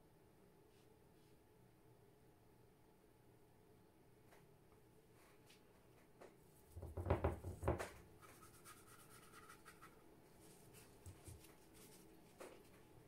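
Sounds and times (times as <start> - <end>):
rubbing and scraping: 6.6 - 12.8
soft knocks: 6.8 - 8.0.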